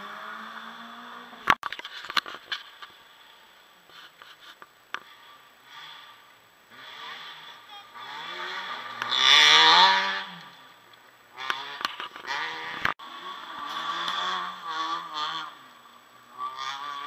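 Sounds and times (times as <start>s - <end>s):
rally car engine revving: 0.0s - 1.6s, 5.0s - 17.0s.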